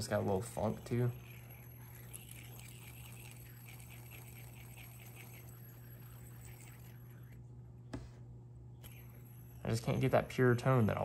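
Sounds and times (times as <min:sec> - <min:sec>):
fidget spinner humming: 0:00.0 - 0:11.0.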